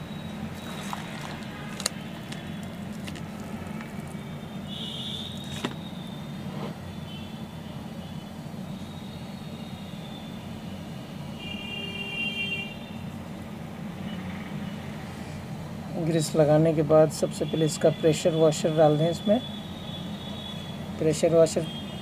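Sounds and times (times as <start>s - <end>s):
low mechanical hum: 0.0s - 17.1s.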